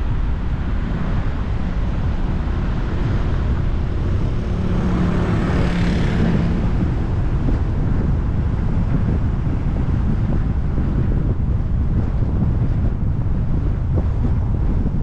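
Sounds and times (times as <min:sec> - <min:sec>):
vehicle passing: 0:00.0 - 0:10.5
car engine and tyres rumble: 0:00.0 - 0:15.0
wind noise on microphone: 0:00.0 - 0:15.0.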